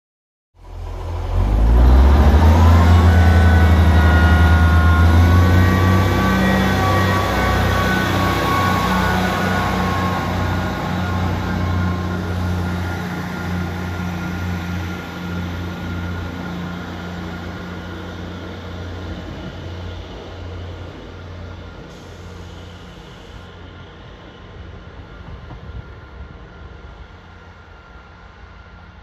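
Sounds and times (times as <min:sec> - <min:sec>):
diesel train engine drone: 0:00.6 - 0:29.0
high whine: 0:00.9 - 0:16.6.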